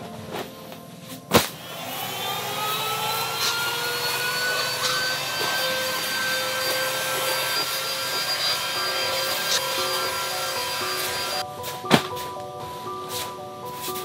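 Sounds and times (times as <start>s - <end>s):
handheld vacuum cleaner whine: 1.4s - 11.5s.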